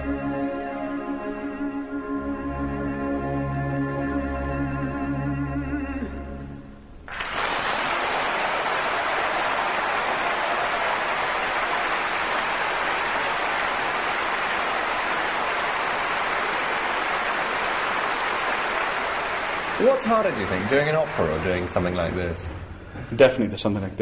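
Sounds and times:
large audience applauding: 7.1 - 22.7.

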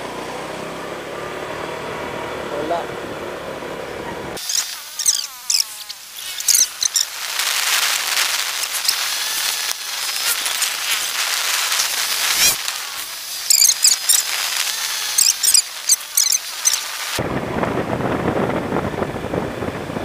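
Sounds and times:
short high-pitched chirps: 4.4 - 7.1, 13.4 - 14.3, 15.1 - 16.9
wind and road hiss: 4.7 - 20.0.

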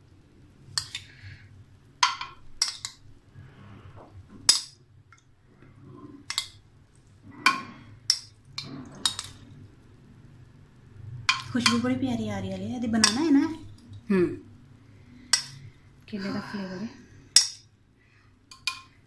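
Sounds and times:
metal spoon clinking on dishes: 2.0 - 3.0, 11.3 - 11.9, 13.0 - 13.5, 18.5 - 19.0.

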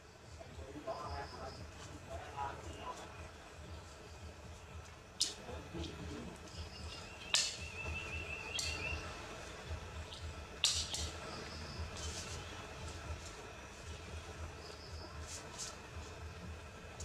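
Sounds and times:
high warbling chirp: 6.4 - 9.4.

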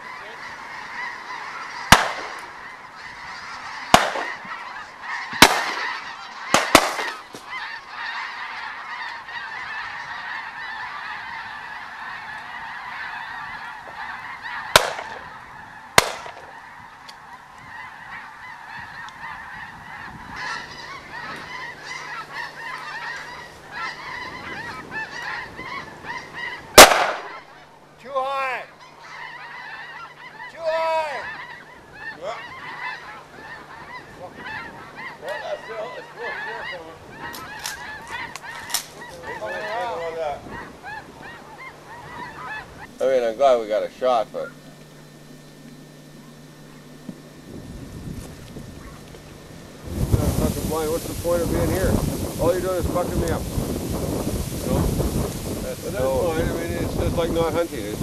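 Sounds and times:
geese honking: 0.0 - 58.0
shotgun shots: 1.9 - 2.4, 3.9 - 4.4, 5.4 - 7.3, 14.7 - 15.2, 16.0 - 16.5, 26.8 - 27.4.

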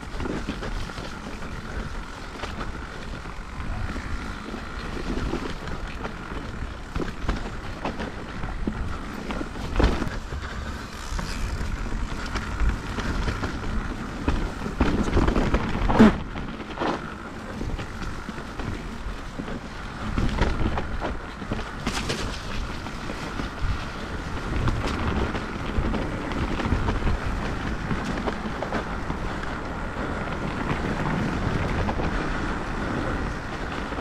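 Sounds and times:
bike rattling: 0.0 - 34.0
bike tyres rumbling over ground: 0.0 - 34.0.

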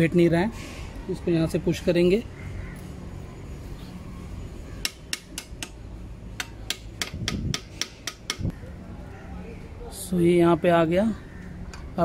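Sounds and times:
hammer tapping metal rod: 4.8 - 5.8, 6.4 - 8.5.

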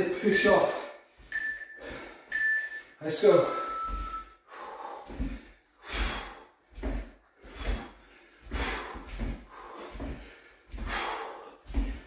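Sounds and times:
hard breathing: 0.0 - 12.0
feet landing on wood floor: 5.0 - 12.0.

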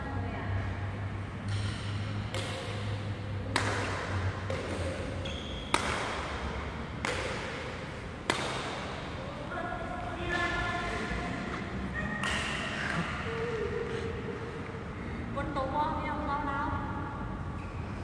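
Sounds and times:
racket hitting shuttlecock: 1.4 - 13.4.

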